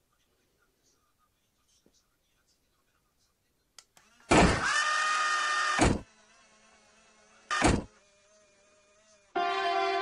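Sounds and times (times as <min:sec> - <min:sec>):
toy car door motor whirring: 0:04.0 - 0:09.4.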